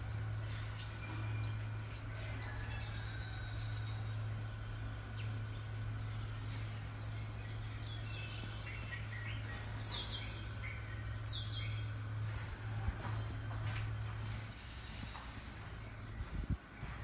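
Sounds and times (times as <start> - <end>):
steady low hum: 0.0 - 17.0
bird chirps: 4.8 - 11.9.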